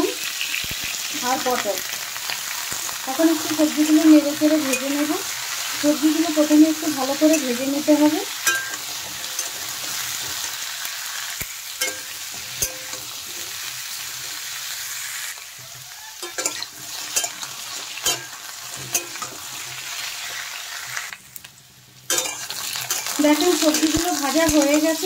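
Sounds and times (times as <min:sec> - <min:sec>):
vegetables sizzling in oil: 0:00.0 - 0:25.0
metal spatula scraping pan: 0:15.6 - 0:20.4, 0:22.1 - 0:24.8.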